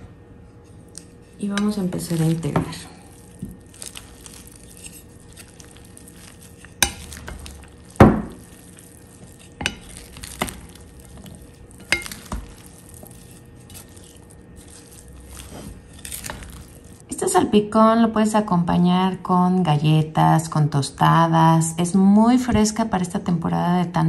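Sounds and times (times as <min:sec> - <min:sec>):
salad stirring in a bowl: 0:00.9 - 0:17.1
wood knocking against bowl: 0:06.8 - 0:08.5.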